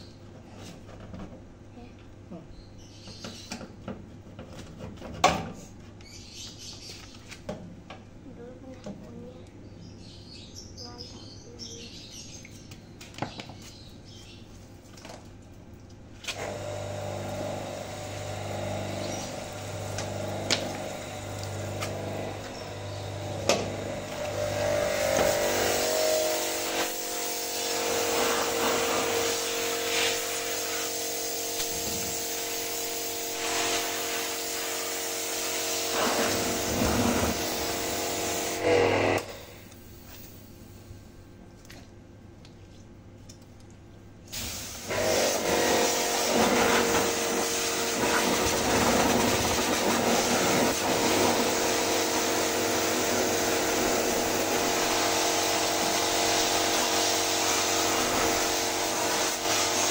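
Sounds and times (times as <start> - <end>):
pressure washer spraying: 16.4 - 39.5, 44.3 - 59.9.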